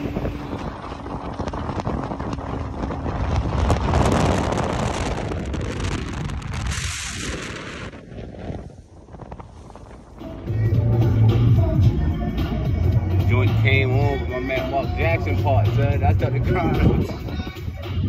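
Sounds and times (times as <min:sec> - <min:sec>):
rushing water and spray: 0:00.0 - 0:10.2
wind buffeting microphone: 0:00.0 - 0:18.0.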